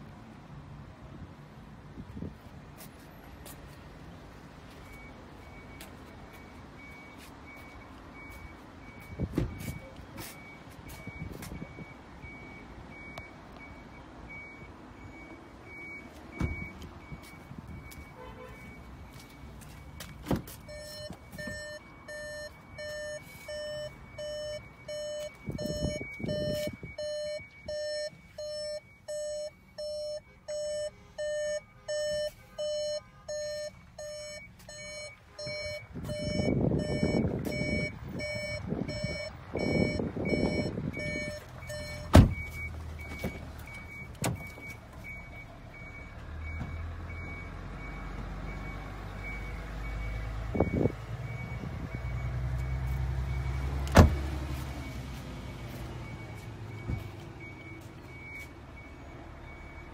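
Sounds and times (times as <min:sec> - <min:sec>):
faint high beep: 0:04.8 - 0:47.5
electronic warning beeps: 0:04.8 - 0:53.7, 0:54.8 - 0:59.9.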